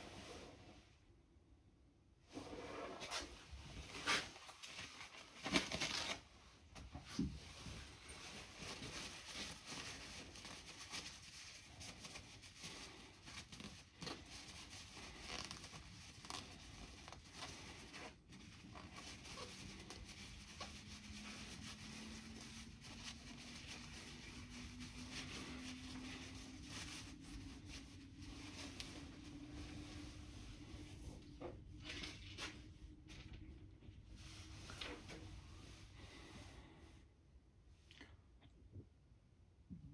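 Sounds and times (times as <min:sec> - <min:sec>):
paper towel rustling and crinkling: 0:02.3 - 0:36.7.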